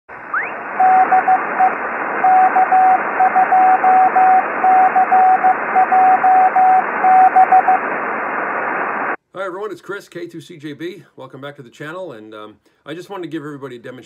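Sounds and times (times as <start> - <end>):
radio static hiss: 0.1 - 9.2
morse code beeps: 0.8 - 7.8.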